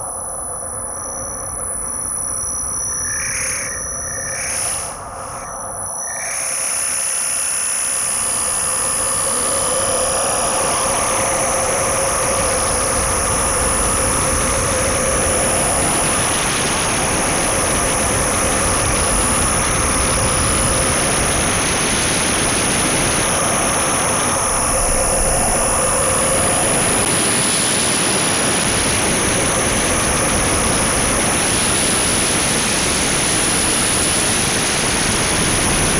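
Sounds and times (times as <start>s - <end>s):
electronic noise drone: 0.0s - 35.9s
thin high whistle: 0.8s - 17.5s.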